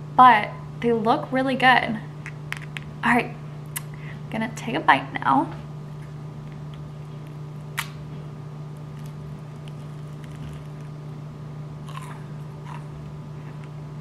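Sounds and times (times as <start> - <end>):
low electrical hum: 0.0 - 14.0
macaron shell cracking: 11.8 - 12.9.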